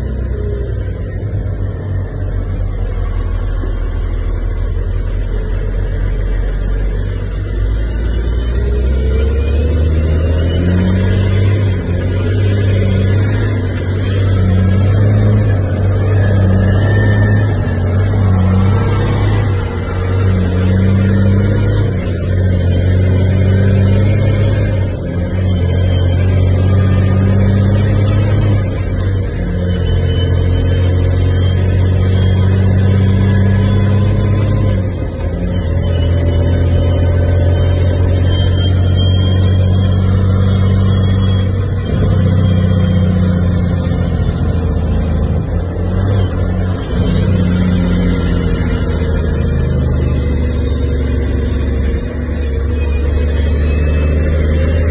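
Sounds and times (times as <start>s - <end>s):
diesel truck engine under load: 0.0s - 54.9s
high whistle: 35.5s - 43.6s, 46.8s - 54.9s.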